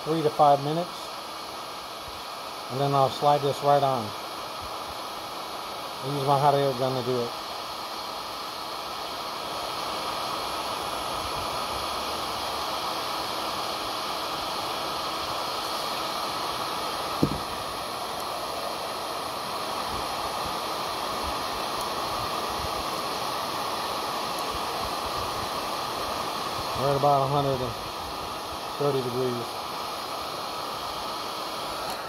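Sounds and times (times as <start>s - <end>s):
hot air gun fan hissing: 0.0s - 32.0s
short knock: 17.2s - 17.5s.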